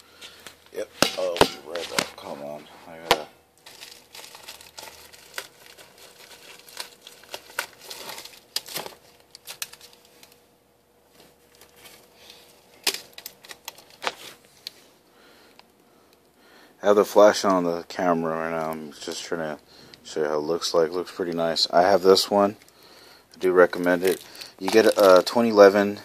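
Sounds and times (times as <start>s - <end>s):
plastic packaging crinkling: 0.3s - 14.8s, 20.7s - 26.0s.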